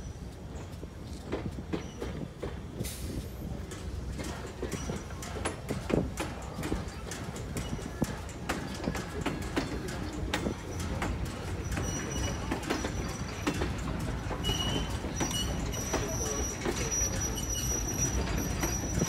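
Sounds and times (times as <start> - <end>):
low rumble of train: 0.0 - 19.0
train wheels clicking over rail joints: 0.0 - 19.0
high wheel squeal: 10.6 - 19.0.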